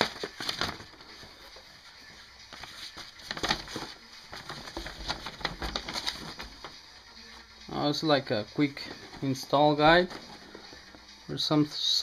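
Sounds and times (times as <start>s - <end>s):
packaging rustling and crinkling: 0.0s - 1.6s, 2.5s - 6.7s.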